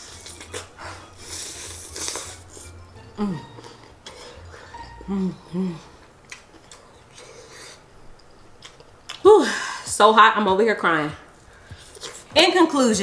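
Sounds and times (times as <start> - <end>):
woman ooh and humming: 3.0 - 3.7, 4.8 - 6.1.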